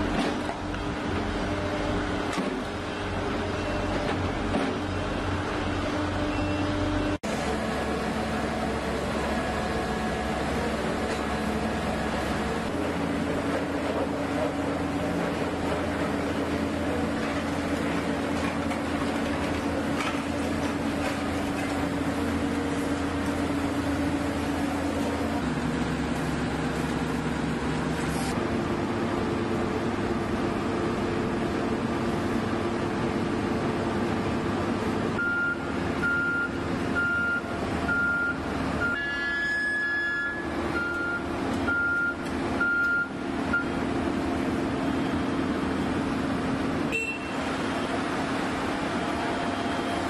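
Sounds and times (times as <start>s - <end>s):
piling rig engine humming: 0.0s - 50.0s.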